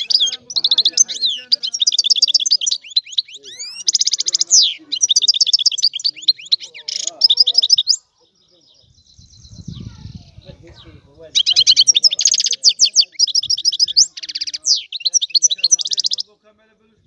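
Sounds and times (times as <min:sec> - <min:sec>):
goldfinch twittering trills: 0:00.0 - 0:08.0, 0:11.3 - 0:16.2.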